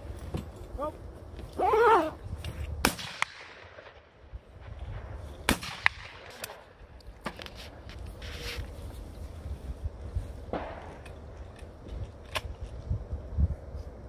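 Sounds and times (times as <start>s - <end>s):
shotgun shots: 2.8s - 4.1s, 5.4s - 6.8s.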